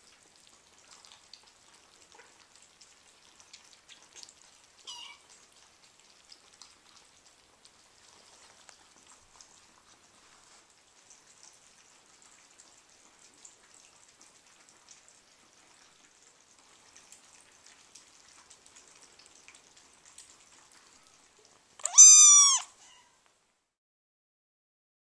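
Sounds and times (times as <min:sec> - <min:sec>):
kitten meowing: 0:04.9 - 0:05.2, 0:21.8 - 0:23.1.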